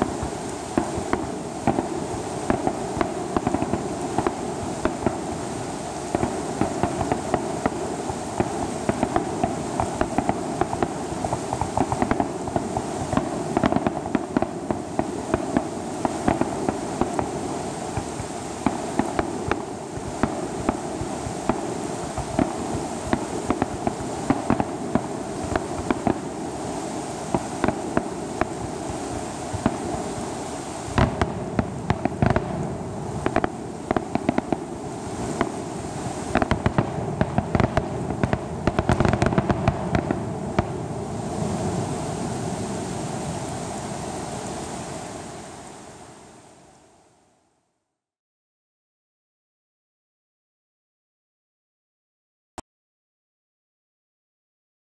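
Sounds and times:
fireworks cracking and popping: 0.0 - 41.9.

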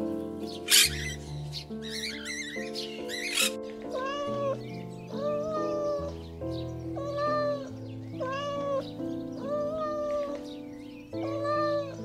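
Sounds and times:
background music: 0.0 - 12.0
cat meowing: 1.9 - 6.2, 6.9 - 10.4, 11.2 - 12.0.

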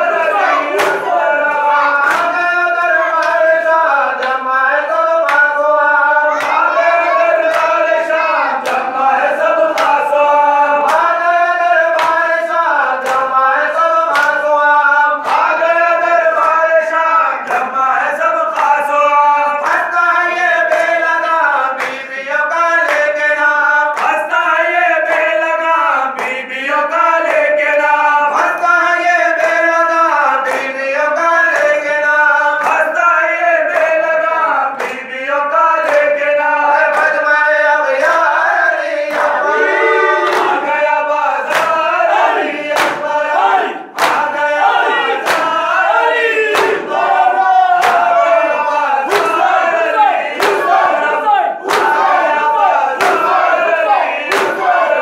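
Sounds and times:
men chanting in chorus: 0.0 - 55.0
hands slapping chests: 0.4 - 2.4, 8.6 - 8.9, 9.7 - 10.0, 12.0 - 12.2, 13.0 - 13.3, 14.1 - 14.4, 39.1 - 40.7, 41.5 - 45.6, 46.5 - 48.4, 49.1 - 54.8.

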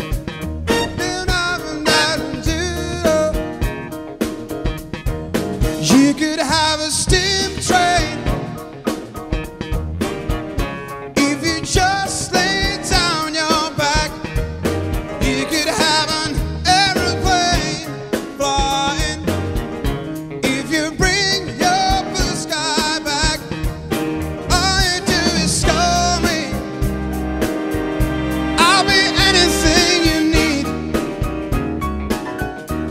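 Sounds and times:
big band playing: 0.0 - 32.9
drum kit beat: 0.0 - 32.9
grand piano: 0.0 - 32.9
guitar: 0.0 - 32.9
man singing: 0.7 - 3.5, 5.8 - 8.7, 11.2 - 14.6, 15.2 - 19.6, 20.4 - 23.9, 24.5 - 26.9, 28.5 - 31.2
saxophones and horns: 0.7 - 3.5, 24.5 - 31.8.

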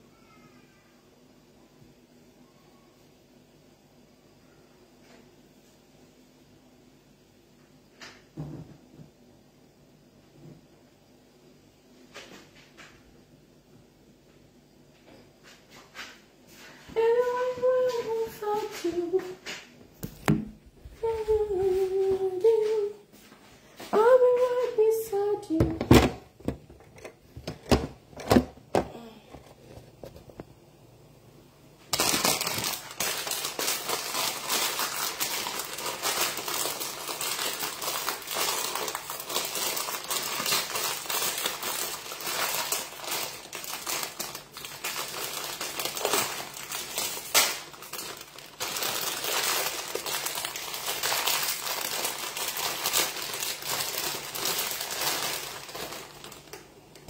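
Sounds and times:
plastic packet crinkling: 31.9 - 57.0.

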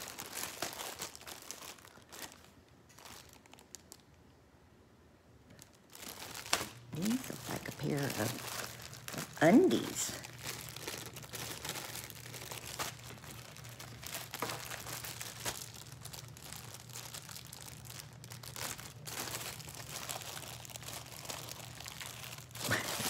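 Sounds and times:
packaging crinkling: 0.0 - 4.2, 5.5 - 23.0.

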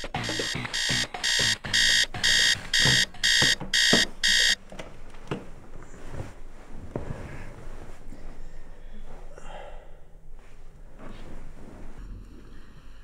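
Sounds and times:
alarm clock beeping: 0.0 - 4.6.

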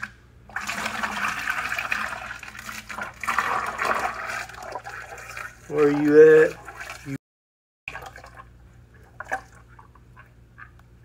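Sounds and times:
oil pouring into bucket: 0.5 - 7.0.

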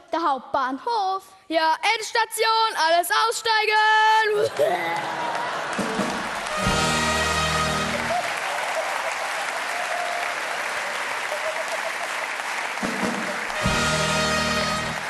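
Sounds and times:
audience applauding: 4.5 - 15.0.

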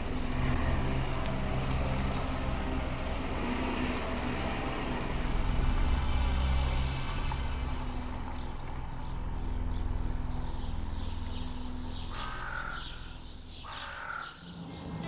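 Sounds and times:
car engine rumble: 0.0 - 12.0
bird calling: 12.1 - 14.5.

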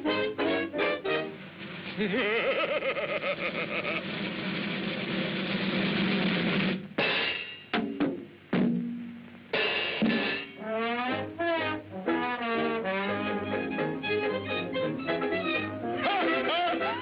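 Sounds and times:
brass phrases with vibrato: 0.0 - 1.4, 10.6 - 17.0
drums and cymbals: 3.6 - 11.0
sharp percussive hits: 4.9 - 10.6.

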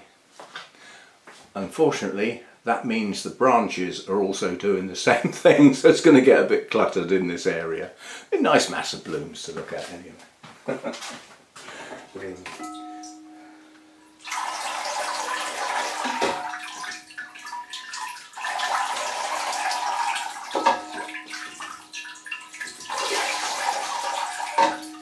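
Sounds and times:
water splashing into glass bowl: 14.1 - 25.0
water pouring into pot: 14.2 - 25.0.

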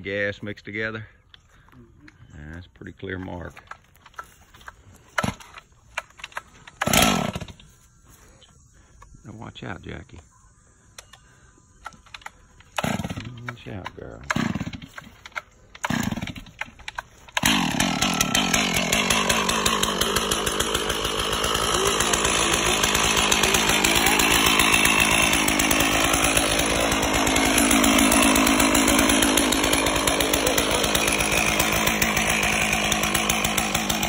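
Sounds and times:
chainsaw cutting log: 4.1 - 7.7, 12.1 - 34.0.

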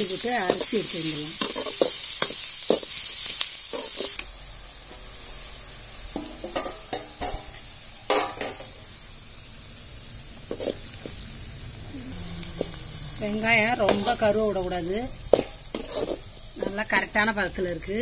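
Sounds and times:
onions sizzling in oil: 0.0 - 18.0
metal spoon scraping pan: 1.4 - 3.0, 3.6 - 4.2, 12.6 - 14.4, 15.3 - 17.1.

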